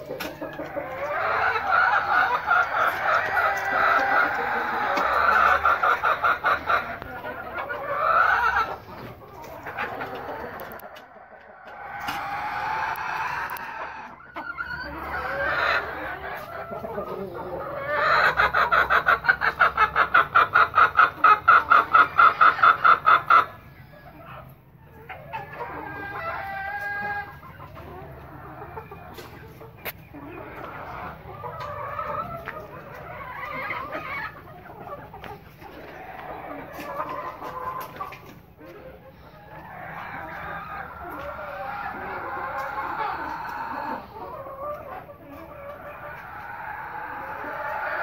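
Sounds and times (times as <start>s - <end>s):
chickens clucking: 0.0s - 48.0s
drawn-out chicken call: 0.0s - 48.0s.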